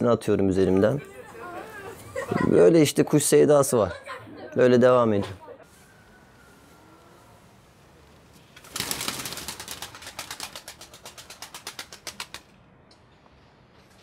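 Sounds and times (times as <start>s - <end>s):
pigeon wings flapping: 8.5s - 12.5s.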